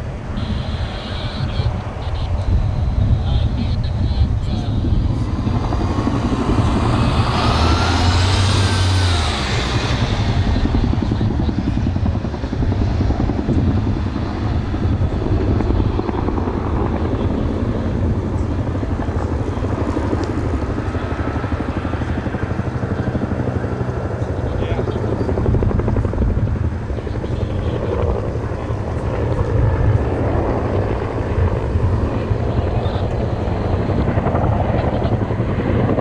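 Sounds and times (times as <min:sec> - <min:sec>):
high whine: 0:00.0 - 0:21.3
helicopter rotor beating: 0:00.0 - 0:36.0.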